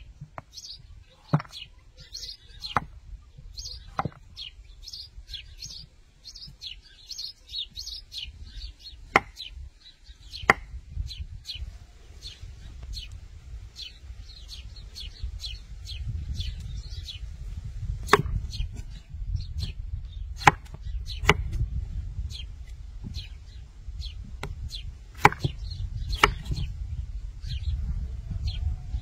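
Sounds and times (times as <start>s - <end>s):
small bird chirping: 0.0s - 29.0s
knife chopping on a board: 9.1s - 9.4s, 20.4s - 21.6s, 25.2s - 25.6s, 26.2s - 26.6s.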